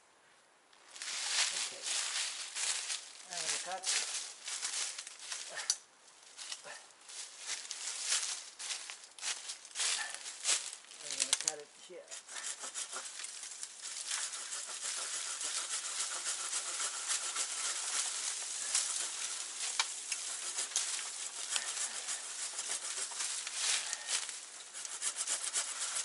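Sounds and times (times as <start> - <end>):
handsaw cutting branch: 11.1 - 26.0.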